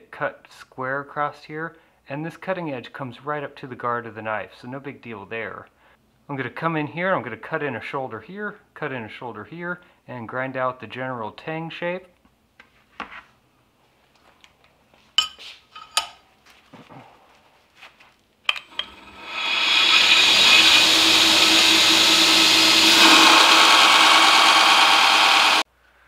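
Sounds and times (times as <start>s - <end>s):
belt grinder grinding steel: 18.5s - 25.6s.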